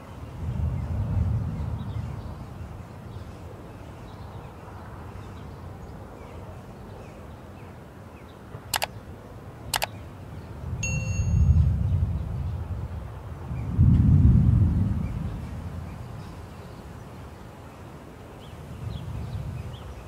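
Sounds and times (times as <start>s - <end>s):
notification ding: 10.8s - 11.6s.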